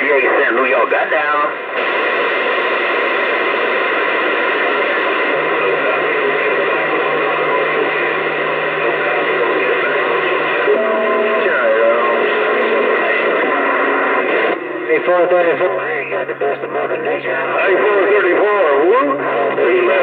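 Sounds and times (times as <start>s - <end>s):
radio static hiss: 0.0s - 20.0s
low steady hum: 1.6s - 19.9s.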